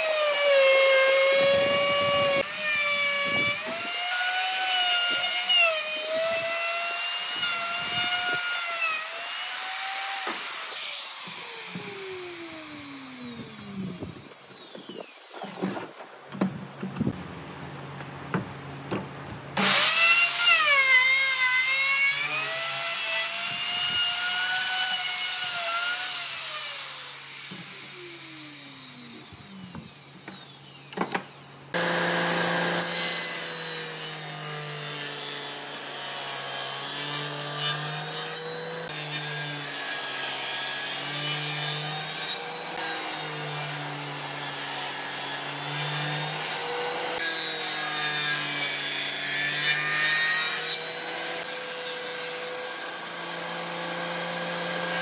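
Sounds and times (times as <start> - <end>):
power tool motor winding down: 9.8 - 15.6, 31.7 - 34.6
table saw ripping wooden board: 31.0 - 55.0.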